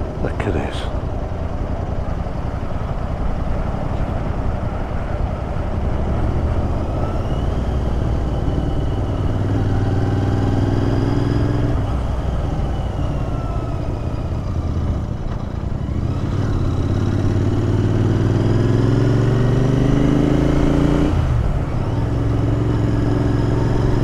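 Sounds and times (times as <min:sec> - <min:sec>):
motorcycle engine revving: 0:05.6 - 0:12.4, 0:13.2 - 0:24.0.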